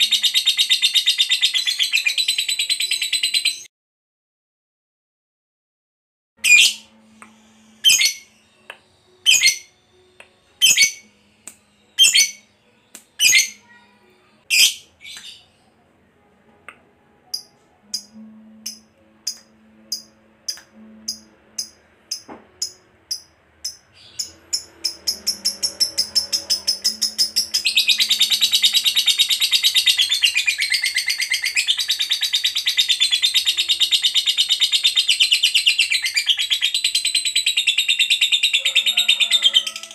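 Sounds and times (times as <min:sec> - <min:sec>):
lovebird chirping and trilling: 0:00.0 - 0:03.7, 0:06.4 - 0:07.0, 0:07.8 - 0:08.5, 0:09.2 - 0:09.7, 0:10.6 - 0:11.1, 0:11.9 - 0:12.5, 0:13.2 - 0:13.6, 0:14.5 - 0:15.5, 0:17.3 - 0:39.9.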